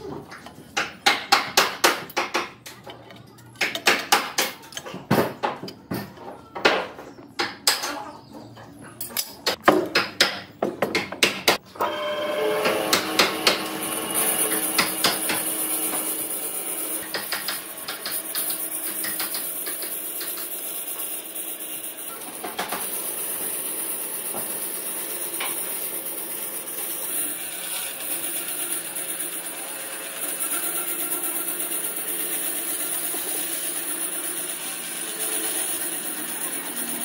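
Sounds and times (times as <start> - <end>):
bandsaw cutting wood: 11.8 - 37.0.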